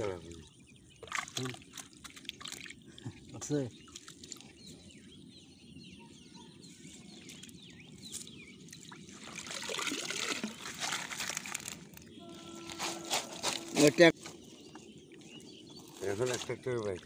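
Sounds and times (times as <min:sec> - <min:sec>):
water trickling and dripping: 0:00.0 - 0:04.8, 0:08.6 - 0:12.2
fish splashing into cloth bag: 0:09.4 - 0:13.8.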